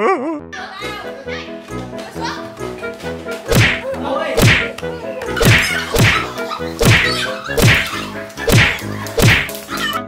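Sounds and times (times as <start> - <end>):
background music: 0.0 - 10.0
punchy whack impacts: 3.5 - 3.8, 4.4 - 4.7, 5.4 - 7.9, 8.5 - 9.5.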